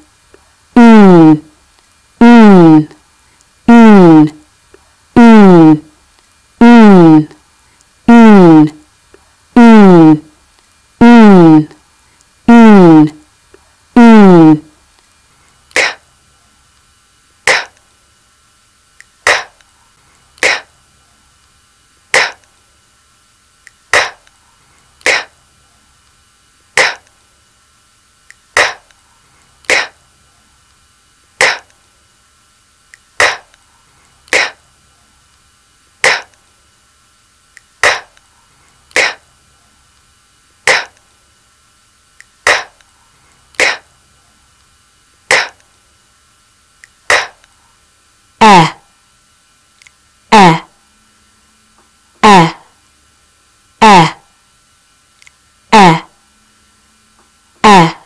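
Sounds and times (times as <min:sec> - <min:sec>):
person saying breathy k sound: 0:00.8 - 0:01.5, 0:02.2 - 0:03.0, 0:03.7 - 0:04.4, 0:05.2 - 0:05.9, 0:06.6 - 0:07.4, 0:08.1 - 0:08.8, 0:09.6 - 0:10.3, 0:11.0 - 0:11.8, 0:12.5 - 0:13.2, 0:14.0 - 0:14.7, 0:15.8 - 0:16.0, 0:20.4 - 0:20.7, 0:25.0 - 0:25.3, 0:39.0 - 0:39.2, 0:48.4 - 0:48.9, 0:50.3 - 0:50.8, 0:52.2 - 0:52.7, 0:53.8 - 0:54.3, 0:55.7 - 0:56.2, 0:57.6 - 0:58.0.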